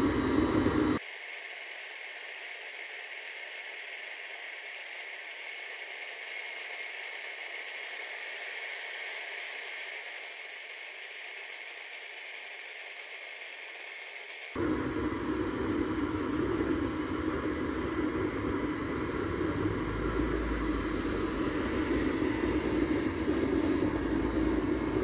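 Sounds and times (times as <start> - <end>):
burner flame hissing: 0.0 - 1.0, 14.6 - 25.0.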